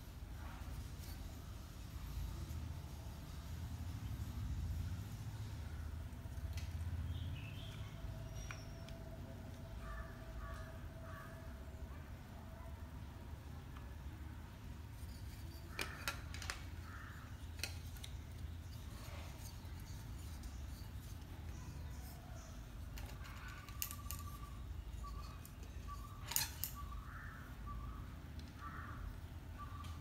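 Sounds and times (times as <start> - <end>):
tripod plastic clicks and knocks: 15.6 - 18.5.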